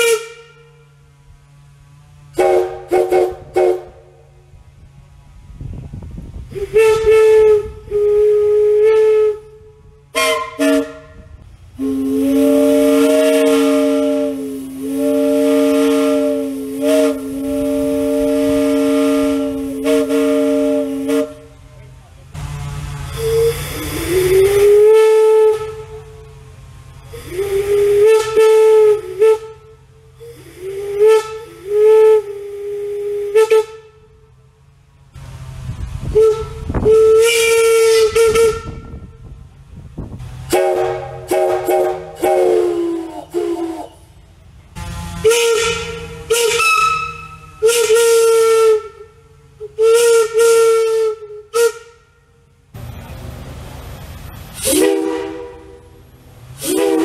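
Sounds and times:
locomotive whistle blasts: 0:00.0 - 0:04.3, 0:06.5 - 0:21.7, 0:22.9 - 0:26.4, 0:27.0 - 0:34.3, 0:36.0 - 0:39.4, 0:40.5 - 0:44.1, 0:44.7 - 0:52.6, 0:54.5 - 0:56.0, 0:56.6 - 0:57.0
air hissing: 0:05.2 - 0:57.0
air hiss: 0:22.4 - 0:34.1, 0:52.8 - 0:57.0.

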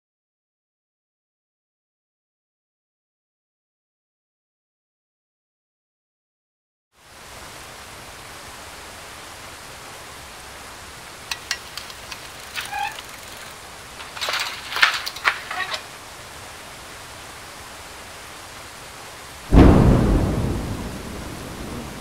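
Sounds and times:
steady rain falling: 0:07.0 - 0:22.0
thunder crackles: 0:19.5 - 0:22.0
thunderclap with low rumble: 0:19.5 - 0:22.0.

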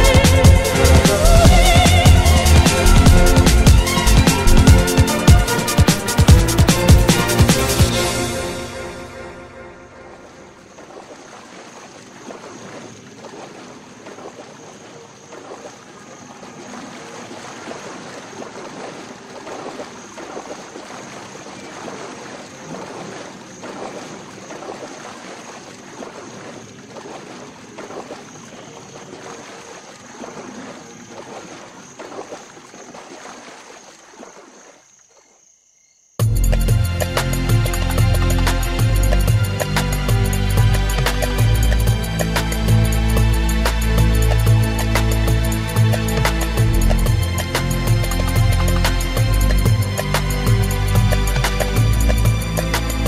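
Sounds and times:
horses splashing through water: 0:10.0 - 0:35.4, 0:36.5 - 0:53.0.

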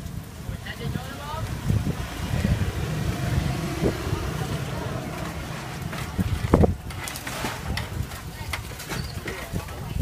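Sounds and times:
wind buffeting microphone: 0:00.0 - 0:10.0
low rumble: 0:00.9 - 0:08.4.

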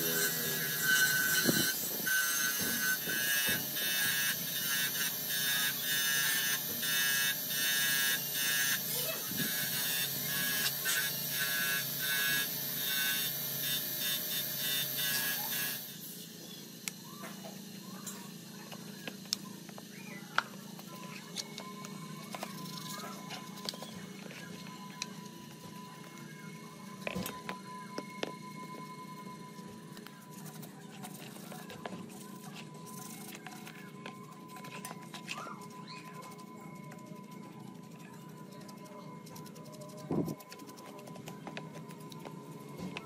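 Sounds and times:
wire brush grinder on metal: 0:00.0 - 0:16.3.

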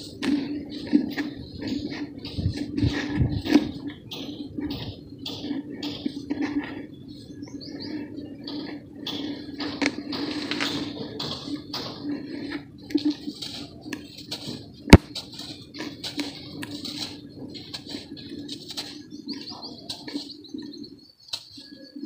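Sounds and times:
dirt lumps crumbling by hand: 0:08.4 - 0:20.3.

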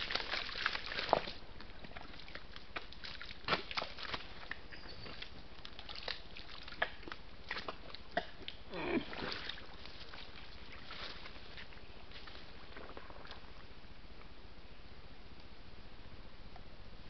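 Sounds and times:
mud sloshing and slapping: 0:00.0 - 0:13.4.

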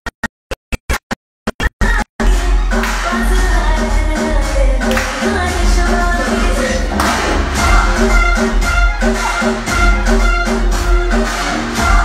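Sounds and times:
stuttering music: 0:06.3 - 0:11.6.

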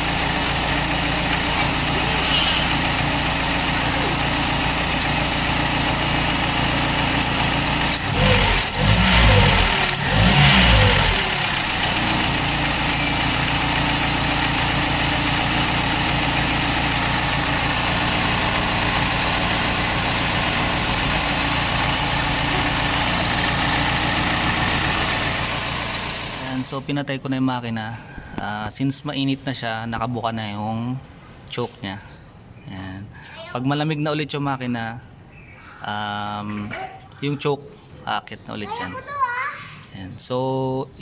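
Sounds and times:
car engine idling: 0:00.0 - 0:26.8.

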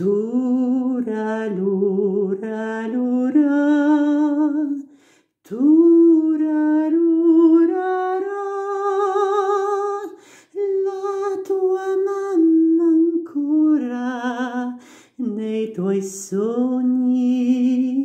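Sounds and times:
man singing lullaby unaccompanied: 0:00.0 - 0:04.8, 0:05.4 - 0:18.0.

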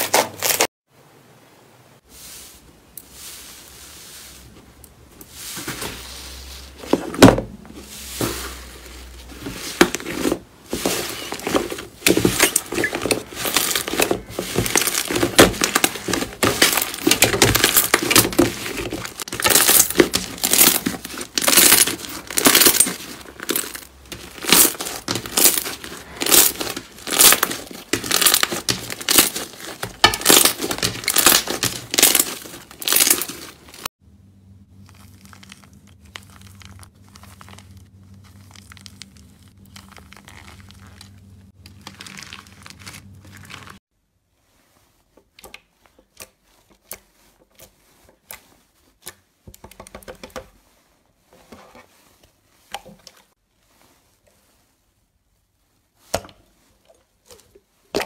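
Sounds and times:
slime squeezes: 0:34.8 - 0:43.8.

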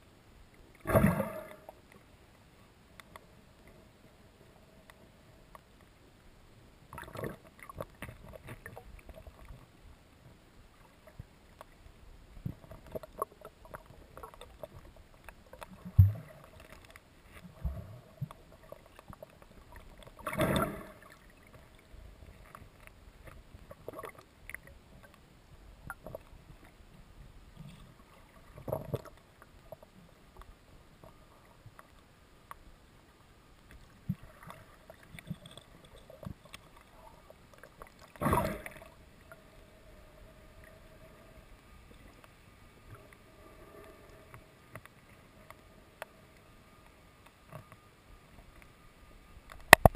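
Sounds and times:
water movement: 0:00.5 - 0:49.9.

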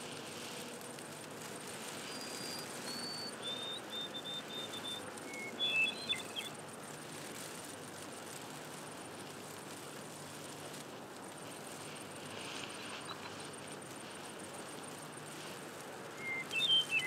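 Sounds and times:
low steady hiss: 0:00.0 - 0:17.0
songbird singing whistled notes: 0:02.0 - 0:06.6, 0:12.9 - 0:13.6, 0:16.2 - 0:17.0.

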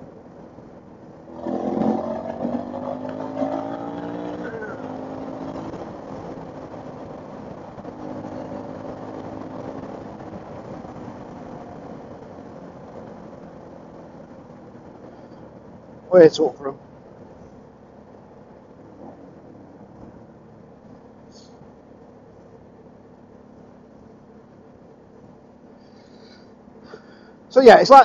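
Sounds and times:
motorcycle engine accelerating: 0:01.0 - 0:15.6.

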